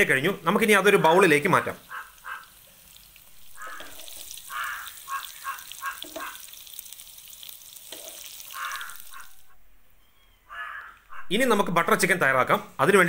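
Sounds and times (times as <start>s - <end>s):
chicken sizzling in hot oil: 0.5s - 9.5s
bird calls: 1.6s - 6.5s, 8.4s - 11.6s
metal spatula in frying pan: 1.8s - 9.4s.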